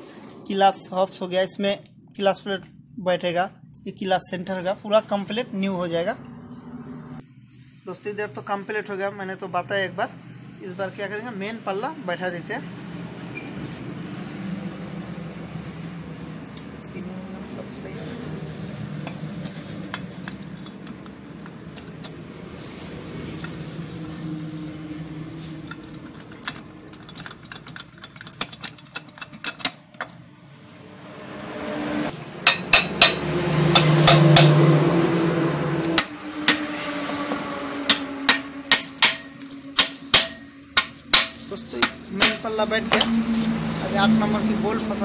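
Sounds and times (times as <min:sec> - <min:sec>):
metal tapping and clinking: 0:25.6 - 0:30.2, 0:32.4 - 0:34.6, 0:37.9 - 0:43.1
steady hum: 0:30.2 - 0:45.0.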